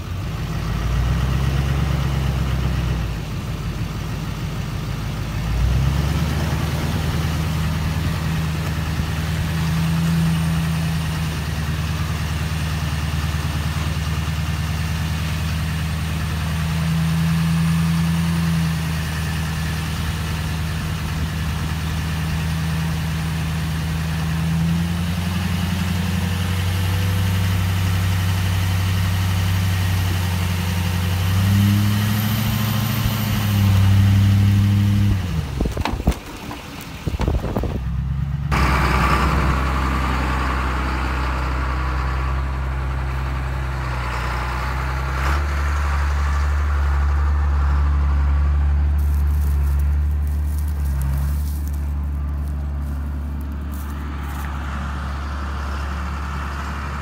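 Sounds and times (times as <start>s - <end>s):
pickup truck engine running: 0.0s - 57.0s.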